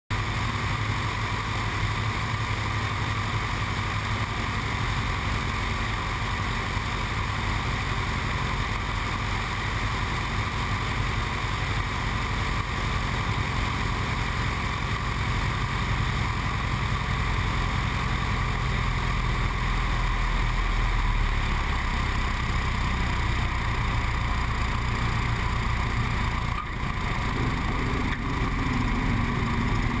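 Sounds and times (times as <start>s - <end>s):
propeller aircraft engine drone: 0.1s - 30.0s.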